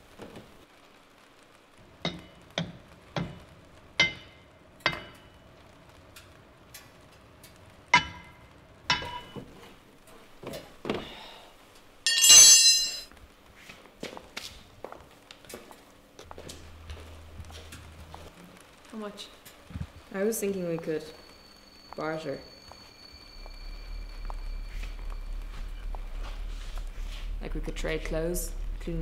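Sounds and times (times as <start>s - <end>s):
spanner clanging on concrete: 12.1s - 13.1s.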